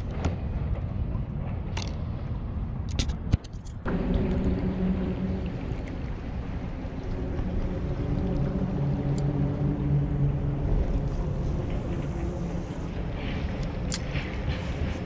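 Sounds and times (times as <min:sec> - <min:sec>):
low rumbling noise: 0:03.8 - 0:15.0
engine droning: 0:03.9 - 0:15.0.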